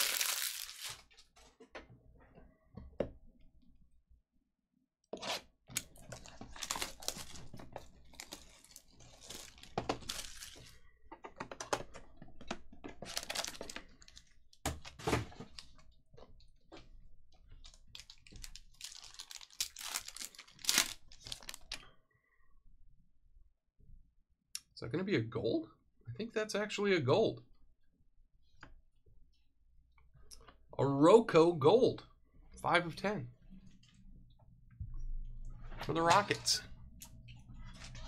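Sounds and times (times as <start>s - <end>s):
plastic wrap crinkling and tearing: 0.0s - 1.2s, 5.8s - 10.8s, 13.0s - 14.4s, 17.6s - 21.8s.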